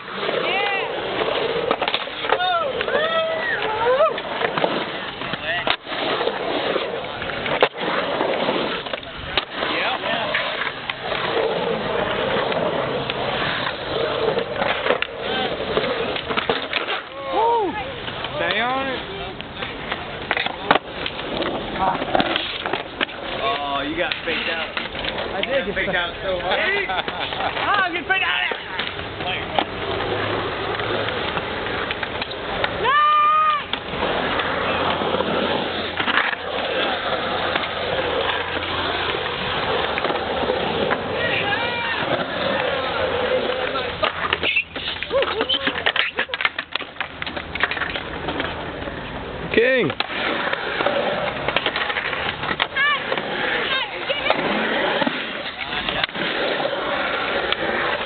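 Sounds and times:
skateboard clacks: 0:00.0 - 0:58.0
skateboard wheels rolling on concrete: 0:00.0 - 0:58.0.

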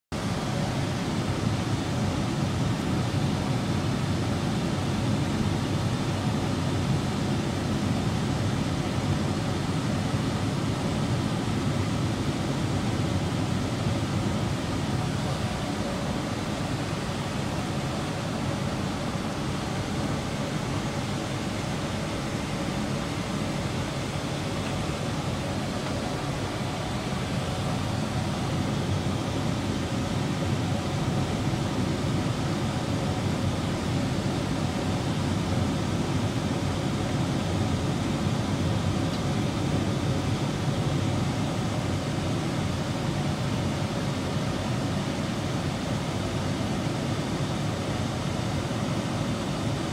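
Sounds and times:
airliner cabin noise: 0:00.2 - 0:49.9.

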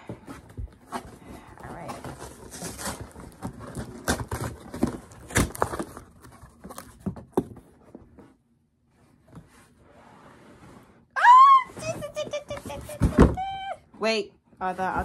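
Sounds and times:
cardboard box rustling: 0:00.1 - 0:08.2, 0:11.8 - 0:13.6.

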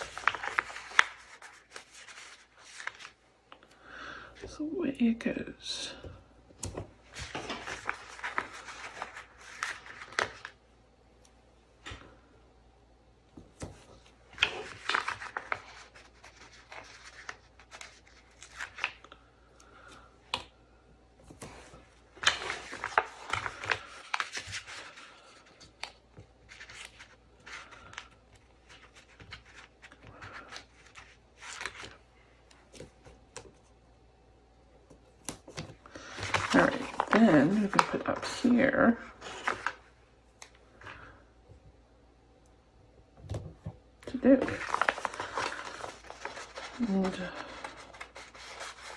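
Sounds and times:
sticker sheet crinkling and peeling: 0:00.0 - 0:03.2, 0:36.1 - 0:39.8, 0:44.1 - 0:48.9.

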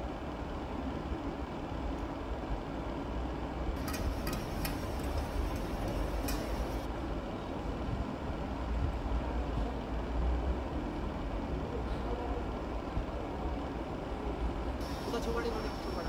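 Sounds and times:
sharp clicks: 0:03.8 - 0:06.9.

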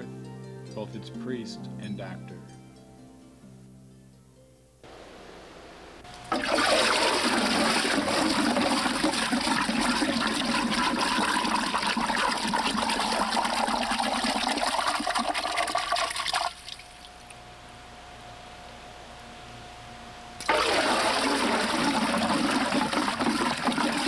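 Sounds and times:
water sloshing in a barrel: 0:06.2 - 0:16.8, 0:20.4 - 0:24.0.

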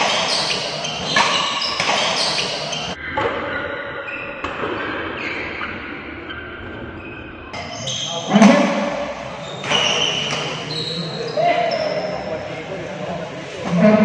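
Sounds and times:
racket striking shuttlecock: 0:00.0 - 0:03.0
shoes squeaking on floor: 0:00.0 - 0:03.0, 0:07.0 - 0:08.6, 0:09.4 - 0:12.3.

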